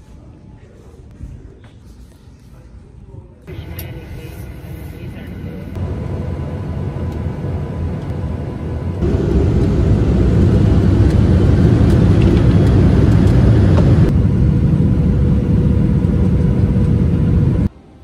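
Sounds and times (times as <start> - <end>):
jet engine cabin rumble: 3.5 - 17.7.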